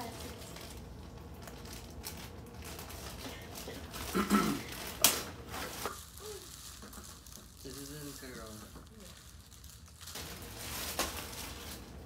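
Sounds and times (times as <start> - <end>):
plastic and paper packaging crinkling: 0.0 - 12.0.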